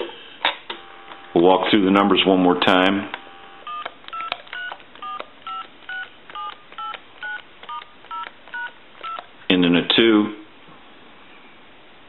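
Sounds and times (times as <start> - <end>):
phone keypad two-tone beeps: 3.6 - 9.2.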